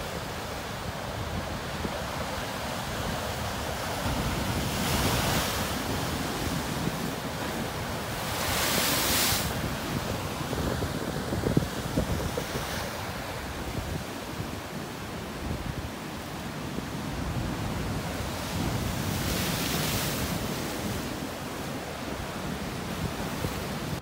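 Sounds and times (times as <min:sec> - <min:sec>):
wind rumble on microphone: 0:00.8 - 0:16.0.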